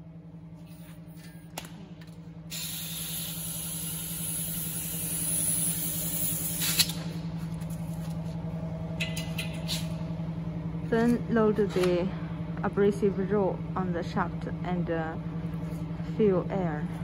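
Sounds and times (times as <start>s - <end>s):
compressed air hissing: 2.5s - 7.0s.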